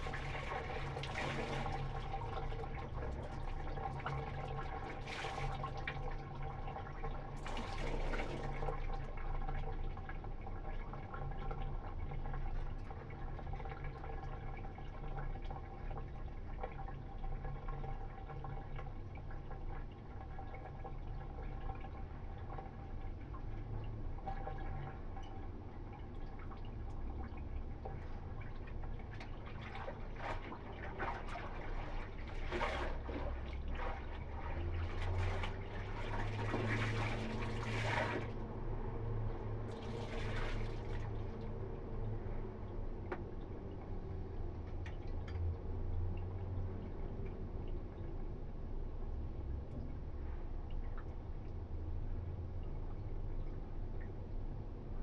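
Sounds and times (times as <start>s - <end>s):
water running from wrung garment: 0.0s - 9.5s, 27.8s - 41.6s
steady background hum: 0.0s - 55.0s
water sloshing in a basin: 0.0s - 55.0s.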